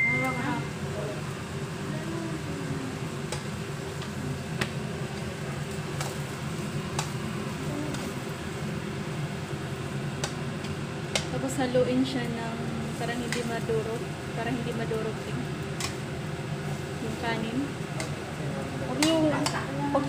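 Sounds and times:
steady low hum: 0.0s - 20.0s
spatula tapping a pan: 10.2s - 11.3s, 19.0s - 19.7s.

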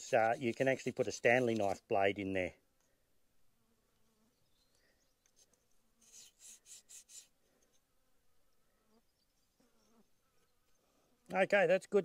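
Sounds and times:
insects buzzing: 2.9s - 11.3s.

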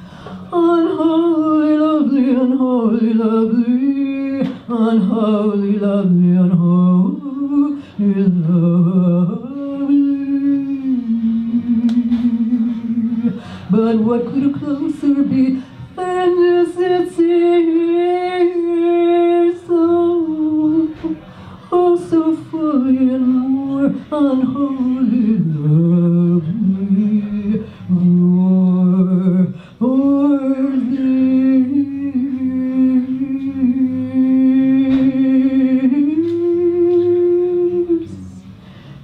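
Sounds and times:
woman singing unaccompanied: 0.5s - 38.5s.

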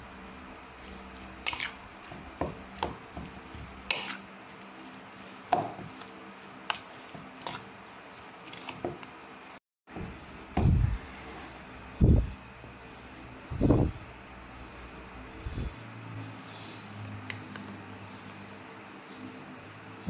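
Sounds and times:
soft squishing: 0.0s - 9.6s
metal utensil scraping bowl: 0.9s - 1.8s, 3.8s - 4.3s.

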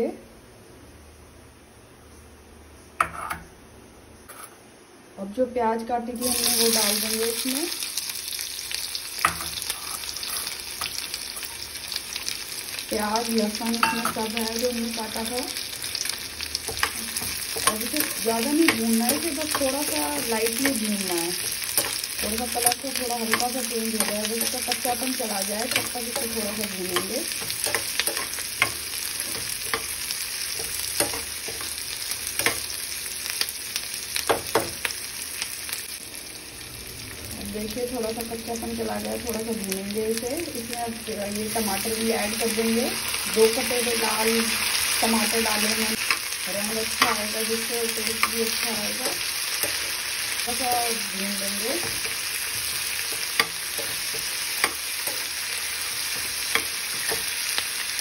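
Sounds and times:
utensil scraping and knocking pan: 3.0s - 3.4s
onions sizzling in a frying pan: 5.2s - 58.0s.

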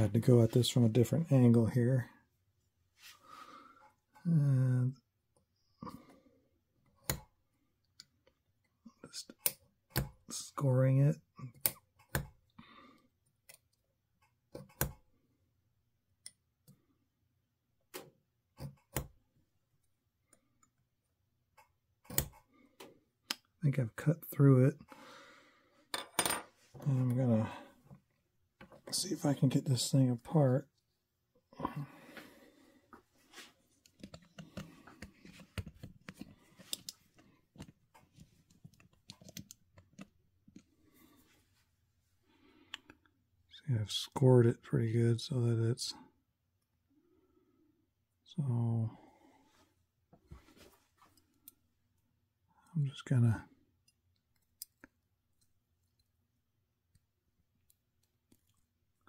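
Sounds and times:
hand-handling clicks and taps: 6.8s - 8.4s, 11.5s - 12.5s, 33.7s - 40.7s.

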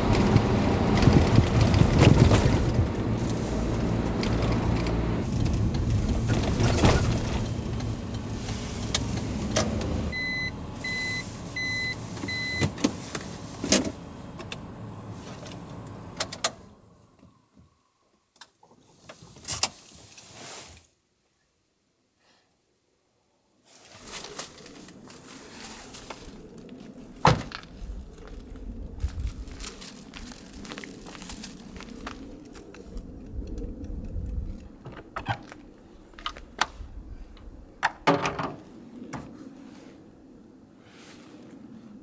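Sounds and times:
van engine and road noise: 0.0s - 17.8s, 23.7s - 42.0s
short electronic beeps: 10.1s - 12.6s.

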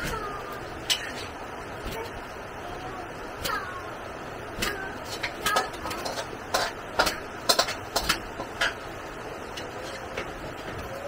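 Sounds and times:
steady background hiss: 0.0s - 11.0s
sharp clicks and knocks: 4.6s - 8.8s.

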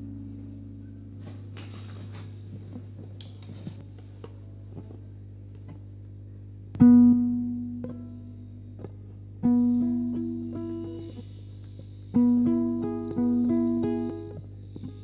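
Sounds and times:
steady low hum: 0.0s - 15.0s
ukulele note plucked: 12.2s - 14.4s.

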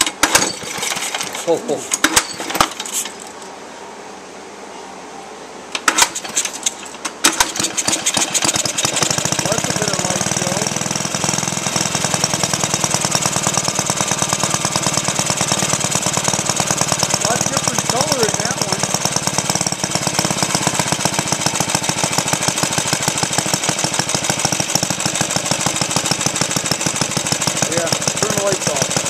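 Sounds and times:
engine knocking and running: 6.2s - 29.0s.

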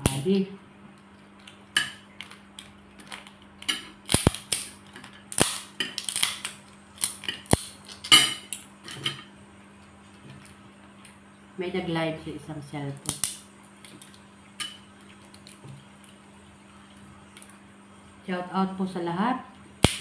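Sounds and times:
faint steady hum: 0.0s - 20.0s
crab shells cracking: 0.9s - 8.8s, 13.0s - 17.6s, 19.8s - 20.0s.

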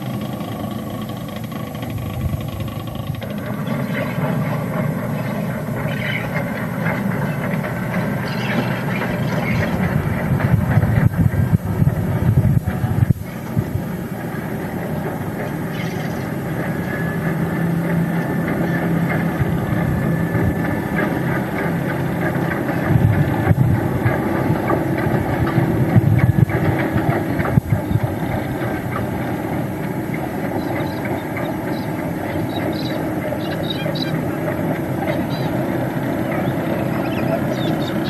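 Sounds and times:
locomotive engine running: 0.0s - 38.0s.

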